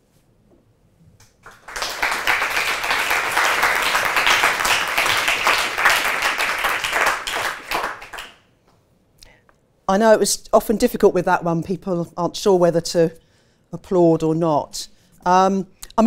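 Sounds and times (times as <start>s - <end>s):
audience applauding: 1.3s - 8.4s.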